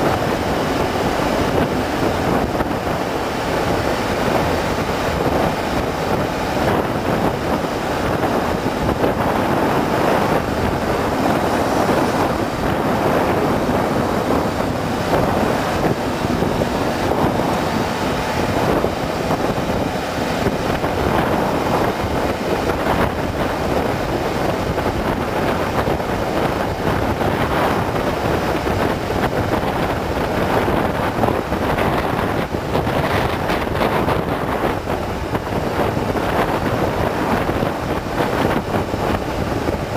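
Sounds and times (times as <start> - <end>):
wind buffeting microphone: 0.0 - 39.9.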